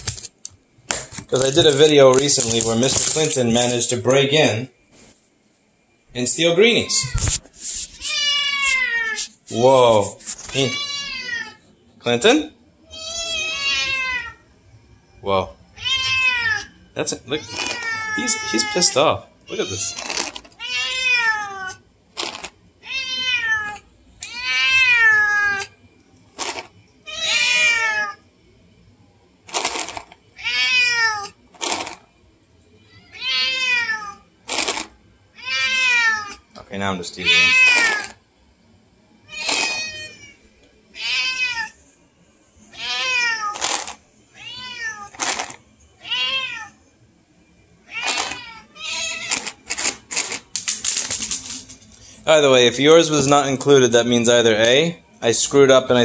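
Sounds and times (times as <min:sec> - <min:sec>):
cat meowing: 0:08.0 - 0:09.3, 0:10.4 - 0:11.6, 0:12.9 - 0:14.4, 0:15.8 - 0:21.8, 0:22.8 - 0:25.7, 0:27.0 - 0:28.2, 0:30.4 - 0:31.4, 0:32.9 - 0:34.2, 0:35.4 - 0:36.4, 0:37.2 - 0:38.2, 0:39.3 - 0:40.4, 0:41.0 - 0:41.8, 0:42.7 - 0:43.6, 0:44.3 - 0:45.2, 0:46.0 - 0:46.8, 0:47.8 - 0:49.6.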